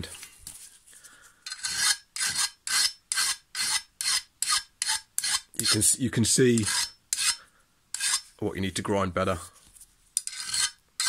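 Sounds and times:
file rasping on steel blade: 1.5 - 5.8, 6.6 - 8.3, 10.2 - 11.0.

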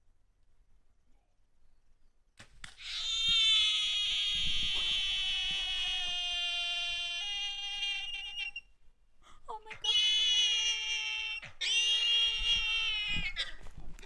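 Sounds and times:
sharp click: 2.4 - 2.8
wild boar squealing: 2.8 - 8.7, 9.8 - 13.6.

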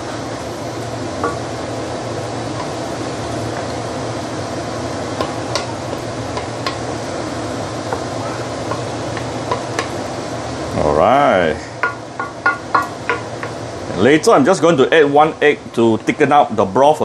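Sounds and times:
food sizzling in frying pan: 0.0 - 17.0
spatula scraping and tapping pan: 1.2 - 1.5, 5.2 - 6.9, 7.9 - 10.0, 11.8 - 13.6.

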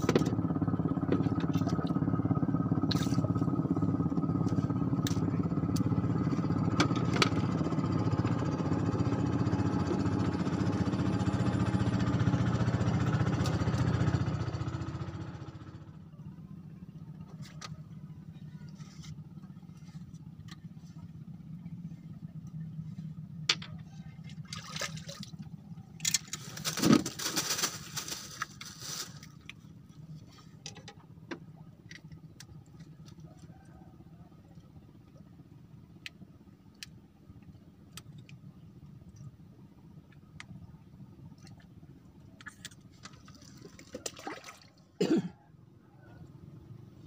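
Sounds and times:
steady low hum: 15.4 - 43.1
fish splashing in water: 24.3 - 25.4, 42.6 - 44.8.

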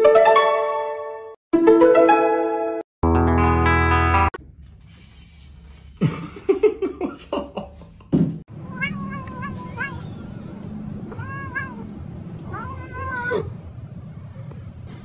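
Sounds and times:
cat meowing: 8.5 - 14.2.

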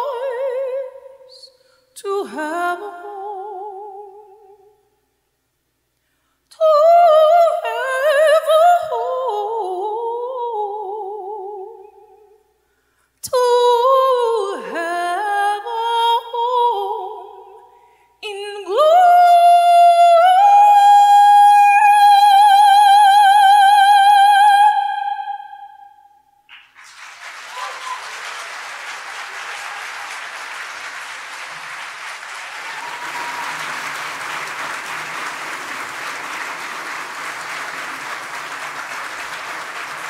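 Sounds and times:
woman singing operatically: 0.0 - 4.6, 6.5 - 12.2, 13.2 - 17.6, 18.2 - 25.8.

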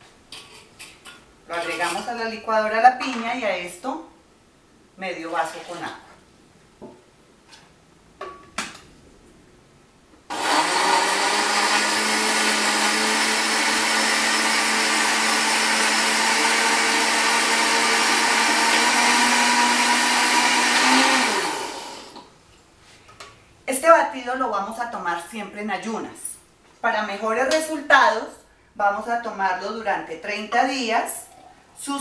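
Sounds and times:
blender motor running: 10.3 - 22.2.

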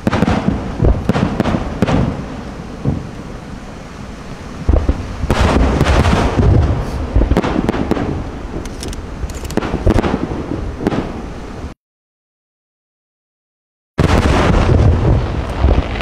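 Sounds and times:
fireworks bursting: 0.0 - 3.3, 4.6 - 11.3, 14.0 - 16.0
fireworks crackling: 0.0 - 3.4, 4.0 - 11.3, 14.0 - 16.0.

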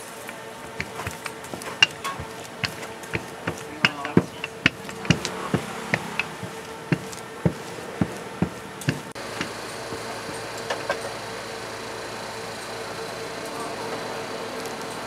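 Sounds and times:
steady hum: 0.0 - 14.6
rolling pin knocking on metal table: 0.7 - 10.1.

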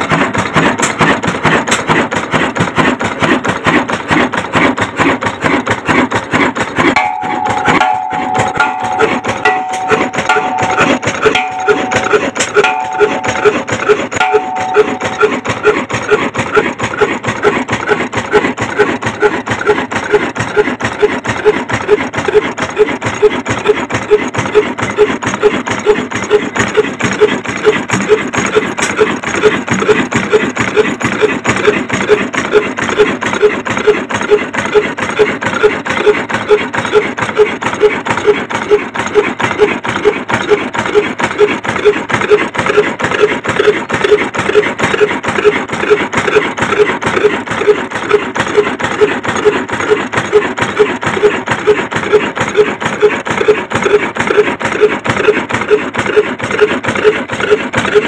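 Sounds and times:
stationary diesel engine running: 0.0 - 58.0
metallic valve gear clatter: 6.9 - 16.1.

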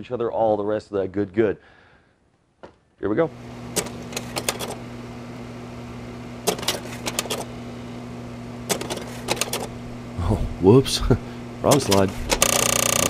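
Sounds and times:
low electrical hum: 0.0 - 13.0
rapid sharp clicks: 3.8 - 4.8, 11.7 - 13.0.

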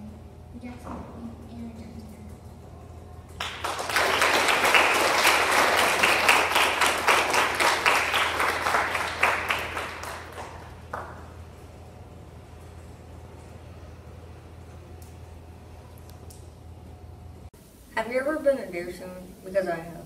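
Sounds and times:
audience applause: 3.4 - 11.4.

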